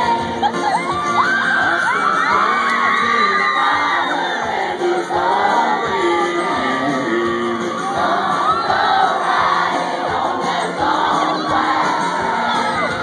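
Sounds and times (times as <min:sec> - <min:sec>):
crowd shouting and singing along: 0:00.0 - 0:13.0
live country band music: 0:00.0 - 0:13.0.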